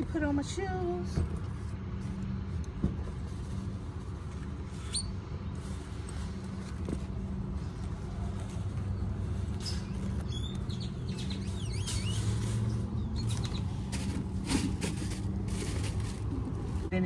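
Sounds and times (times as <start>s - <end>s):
birds chirping: 8.8s - 13.9s.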